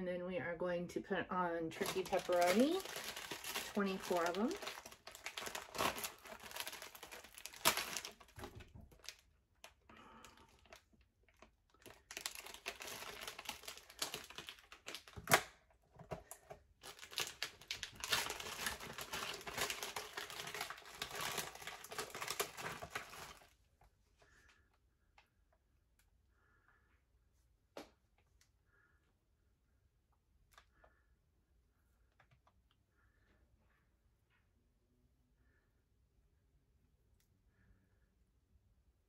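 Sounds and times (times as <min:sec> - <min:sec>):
plastic package crinkling: 0:01.7 - 0:23.6.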